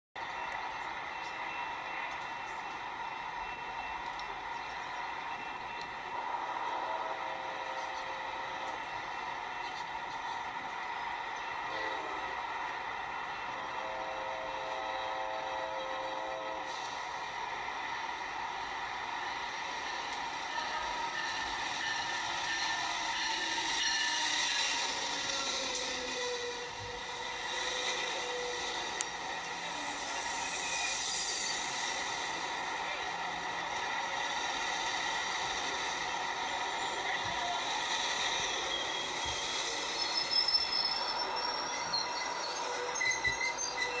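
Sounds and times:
rail noise: 0:00.1 - 0:44.0
locomotive engine drone: 0:00.2 - 0:44.0
high-pitched wheel squeals: 0:20.4 - 0:32.4, 0:36.7 - 0:44.0.

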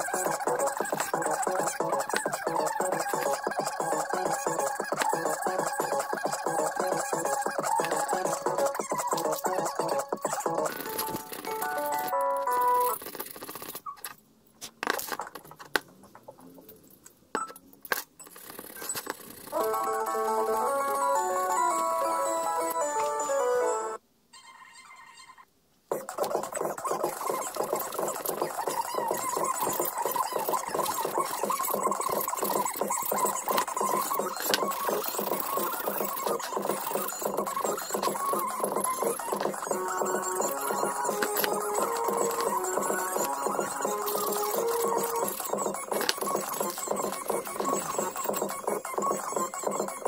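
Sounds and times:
background music: 0:00.0 - 0:13.0, 0:19.5 - 0:24.0, 0:30.8 - 0:50.0.

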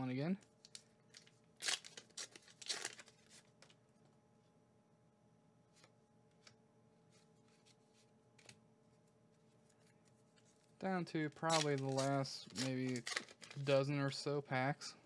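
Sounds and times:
card pack tearing: 0:00.6 - 0:03.5, 0:11.2 - 0:13.8.

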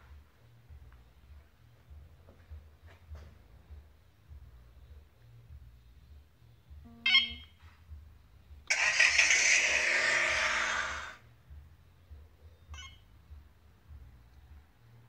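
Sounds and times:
short electronic beep: 0:06.9 - 0:07.5.

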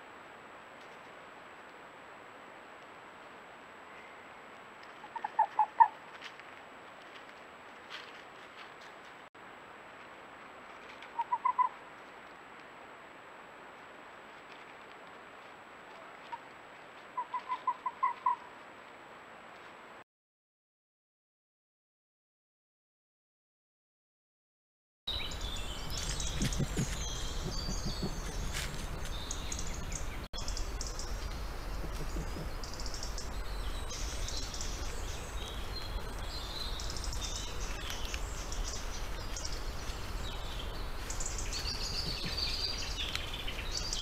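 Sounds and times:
fox calls: 0:05.0 - 0:06.0, 0:11.1 - 0:11.8, 0:17.2 - 0:18.5, 0:31.7 - 0:32.6
songbirds chirping: 0:25.1 - 0:44.0
steady low rumble: 0:25.2 - 0:43.7.

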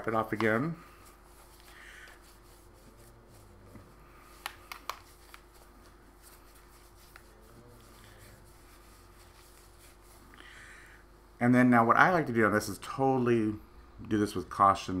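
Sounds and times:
tissue rustling on phone: 0:04.2 - 0:10.3.

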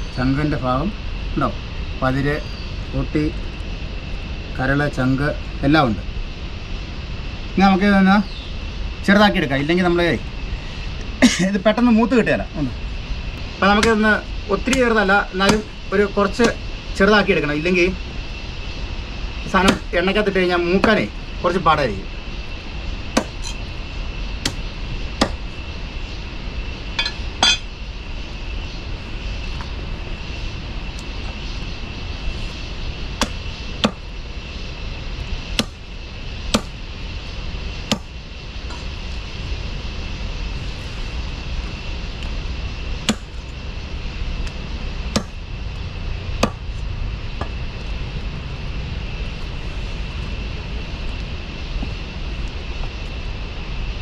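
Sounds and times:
faint high whine: 0:00.0 - 0:54.0
low rumble: 0:08.5 - 0:54.0
knife chopping on wooden block: 0:15.5 - 0:15.7, 0:19.6 - 0:19.8, 0:25.2 - 0:25.4, 0:35.6 - 0:35.8, 0:36.5 - 0:36.7.

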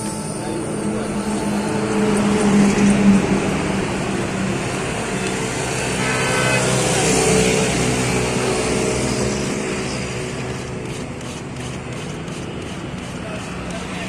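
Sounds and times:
brief high tone: 0:00.0 - 0:03.2, 0:05.7 - 0:07.6
motor vehicle passing: 0:00.0 - 0:14.0.

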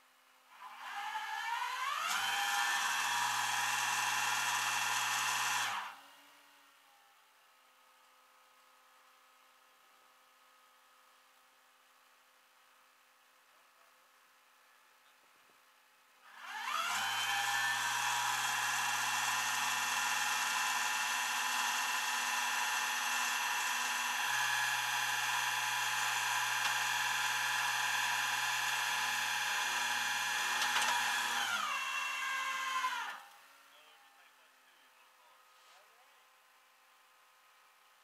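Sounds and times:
winch whining: 0:16.4 - 0:33.3.

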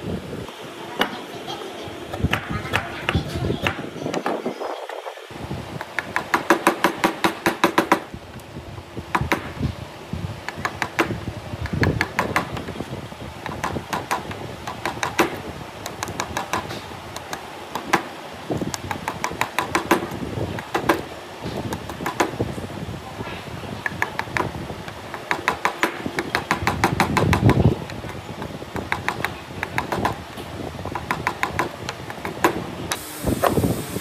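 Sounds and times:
chisel striking wood: 0:05.8 - 0:08.1, 0:09.1 - 0:09.6, 0:10.5 - 0:12.7, 0:13.4 - 0:18.1, 0:18.7 - 0:21.1, 0:21.7 - 0:22.4, 0:23.8 - 0:30.3, 0:30.9 - 0:32.6.

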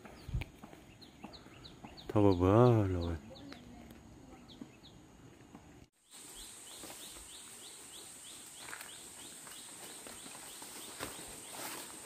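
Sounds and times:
small bird chirping: 0:00.0 - 0:05.4.

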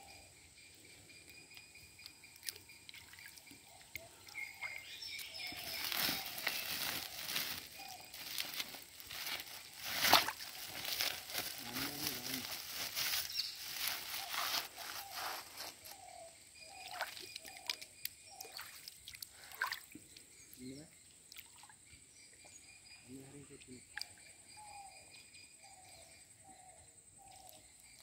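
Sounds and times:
plastic sack rustling and crinkling: 0:05.5 - 0:15.9.

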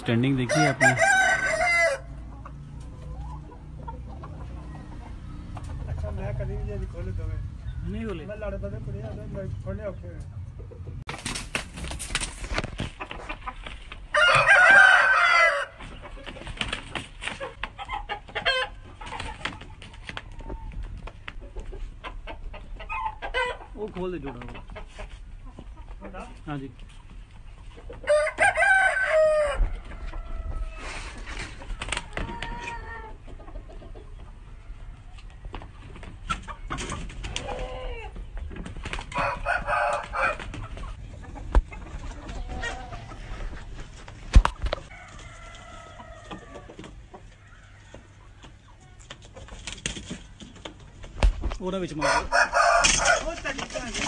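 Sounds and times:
rooster clucking: 0:00.0 - 0:06.5, 0:12.8 - 0:16.6, 0:17.2 - 0:26.4, 0:27.4 - 0:38.3, 0:39.0 - 0:50.4, 0:51.8 - 0:54.0
rooster crowing: 0:00.4 - 0:02.2, 0:14.1 - 0:15.8, 0:28.0 - 0:30.9, 0:39.2 - 0:40.5, 0:44.9 - 0:46.8, 0:52.0 - 0:53.3
wings flapping: 0:11.1 - 0:14.8, 0:15.8 - 0:17.8, 0:19.0 - 0:21.4, 0:31.1 - 0:32.7, 0:35.8 - 0:37.7, 0:38.4 - 0:41.0, 0:49.1 - 0:51.6, 0:52.8 - 0:54.0.

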